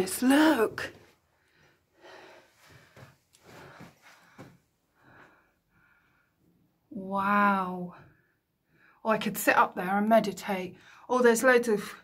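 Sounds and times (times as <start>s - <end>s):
person breathing in puffs: 1.5s - 6.3s.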